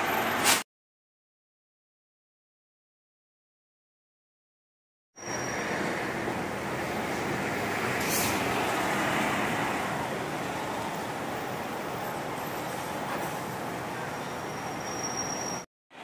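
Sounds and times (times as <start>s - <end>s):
coach engine and road rumble: 5.2s - 16.0s
air brake hiss: 8.0s - 8.5s.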